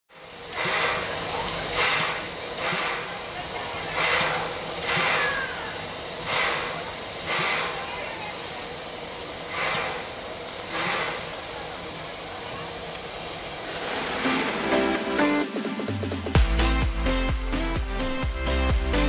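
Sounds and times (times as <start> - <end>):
steam hissing: 0.1 - 15.2.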